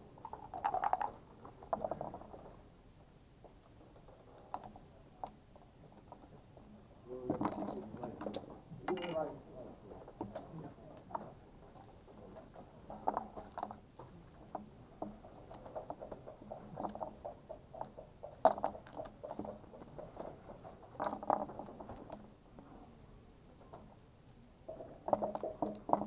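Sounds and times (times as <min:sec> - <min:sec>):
game checkers clattering on board: 0:00.2 - 0:02.2, 0:07.3 - 0:09.3, 0:24.8 - 0:26.0.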